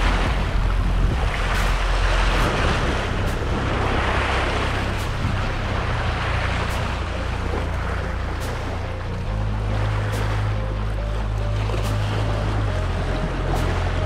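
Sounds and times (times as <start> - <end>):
waves splashing on rocks: 0.0 - 8.9
constant low rumble: 0.0 - 14.0.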